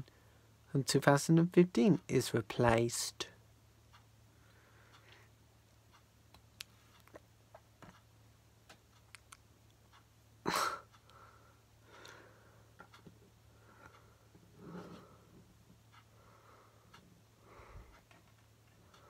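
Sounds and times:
person breathing: 4.3 - 5.3, 10.5 - 12.8, 13.5 - 15.4, 16.1 - 18.1.

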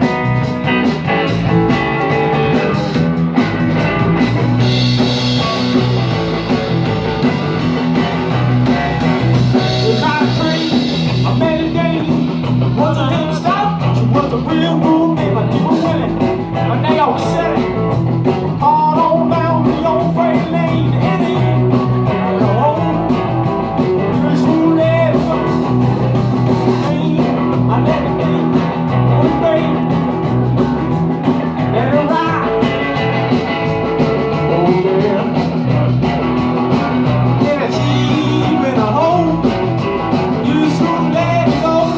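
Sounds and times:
bass guitar: 0.0 - 41.9
drum kit beat: 0.0 - 41.9
electric guitar: 0.0 - 41.9
man singing lead vocal: 9.5 - 23.4, 24.0 - 30.4, 31.6 - 33.1, 34.3 - 35.7, 37.3 - 41.9.

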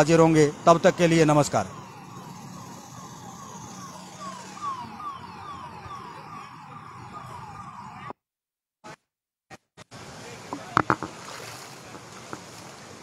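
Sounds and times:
traffic in floodwater: 0.0 - 8.1, 9.9 - 13.0
ambulance siren: 0.0 - 8.2.

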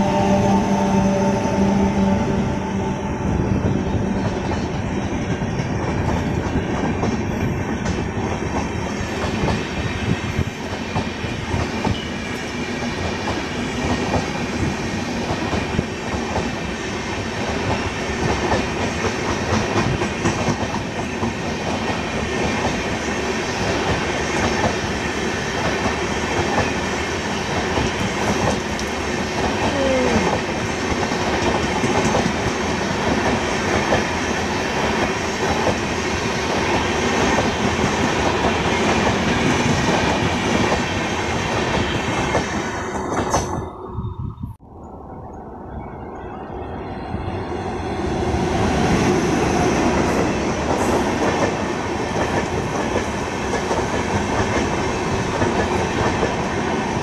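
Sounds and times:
train wheels rumbling on rail: 0.0 - 44.6, 45.8 - 57.0
wheels clickety-clack over rail joints: 4.2 - 43.6, 48.2 - 57.0.

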